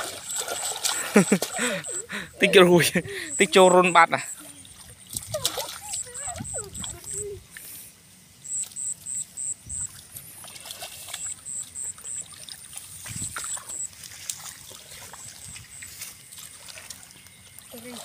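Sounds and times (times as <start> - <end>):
hands sloshing through muddy water: 0.0 - 7.8, 8.6 - 18.0
high thin chirps: 0.3 - 4.5, 5.9 - 12.3.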